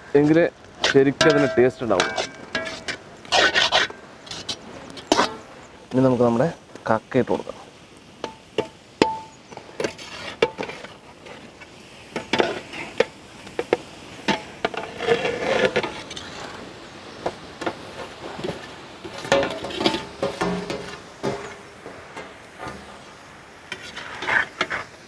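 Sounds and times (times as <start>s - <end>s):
metal spatula against pan: 0.2s - 5.4s, 8.2s - 16.4s, 17.2s - 22.9s, 23.6s - 25.0s
food sliding into pan: 9.5s - 25.0s
plate rim knocking on pan: 19.2s - 22.3s.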